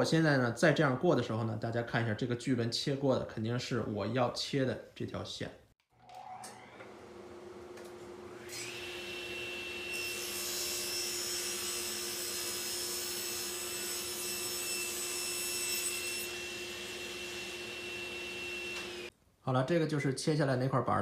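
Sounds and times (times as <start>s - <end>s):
table saw spinning up whine: 6.1s - 12.0s, 16.1s - 19.1s.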